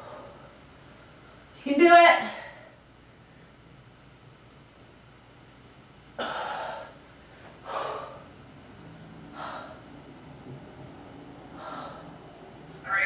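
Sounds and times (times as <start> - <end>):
woman gasping breaths: 6.2 - 8.3, 9.3 - 9.9, 11.5 - 12.2.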